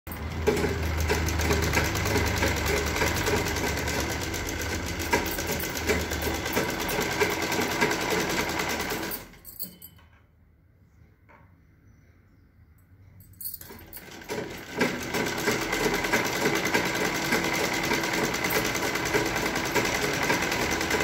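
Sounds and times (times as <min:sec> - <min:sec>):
sewing machine stitching: 0:00.1 - 0:09.4, 0:13.6 - 0:21.0.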